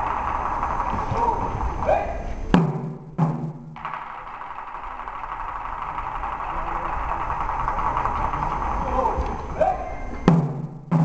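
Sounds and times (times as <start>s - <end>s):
taiko drum strikes: 2.5s - 3.9s, 10.3s - 11.0s.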